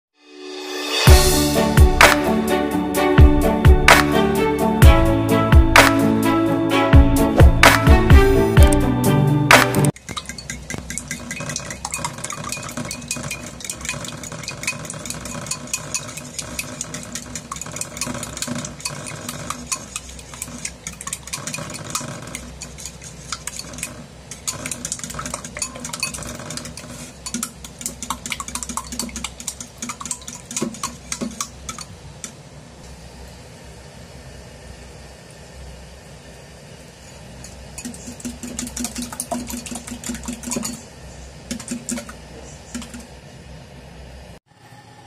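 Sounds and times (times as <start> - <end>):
whisk clicking against bowl: 10.0 - 31.9, 37.4 - 43.1.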